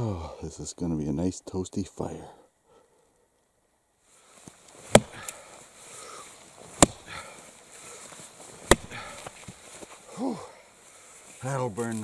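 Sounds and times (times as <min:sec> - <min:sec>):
axe chopping into log: 0:04.8 - 0:05.4, 0:06.7 - 0:07.3, 0:08.6 - 0:09.6.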